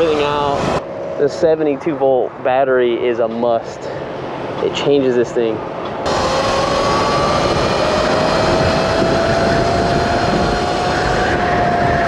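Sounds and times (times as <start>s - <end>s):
wind and road noise: 0.0s - 12.0s
electric motor whine: 6.1s - 12.0s.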